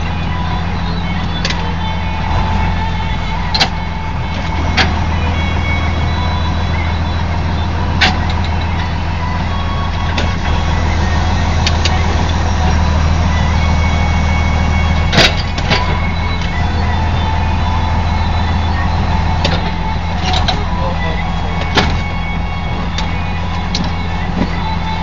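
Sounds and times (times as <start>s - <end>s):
tractor engine running: 0.0s - 25.0s
sharp clicks and knocks: 3.5s - 5.0s, 8.0s - 8.9s.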